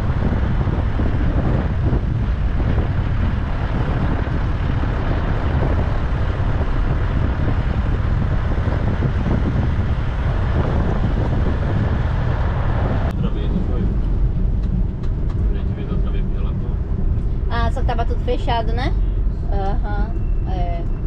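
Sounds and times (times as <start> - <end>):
vehicle road and engine rumble: 0.0 - 21.0
wind buffeting microphone: 0.0 - 21.0.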